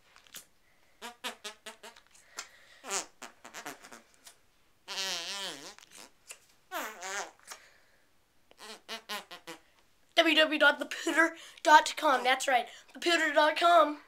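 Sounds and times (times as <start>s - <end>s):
fart noise toy buzzing: 1.0s - 2.1s, 2.8s - 4.2s, 4.8s - 7.6s, 8.5s - 9.6s.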